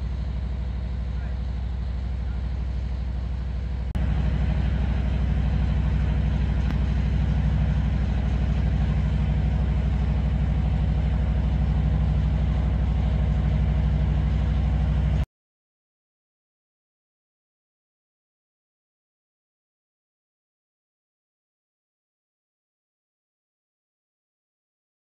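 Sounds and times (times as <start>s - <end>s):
generator engine droning: 0.0s - 15.2s.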